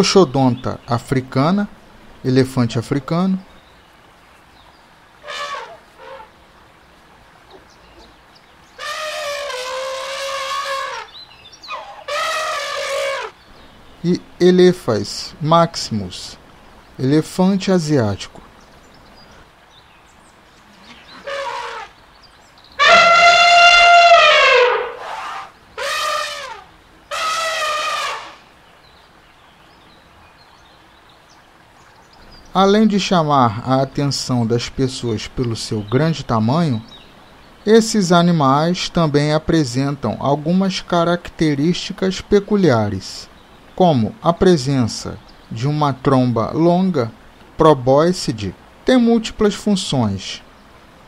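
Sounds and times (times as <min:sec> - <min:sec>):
elephant trumpeting: 0:05.2 - 0:06.4, 0:08.7 - 0:13.4, 0:20.7 - 0:22.0, 0:22.8 - 0:28.5.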